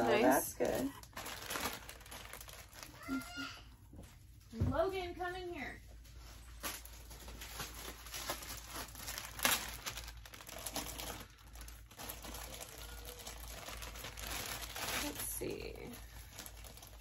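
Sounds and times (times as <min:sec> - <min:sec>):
plastic bags crinkling: 0:00.0 - 0:03.5, 0:06.1 - 0:17.0.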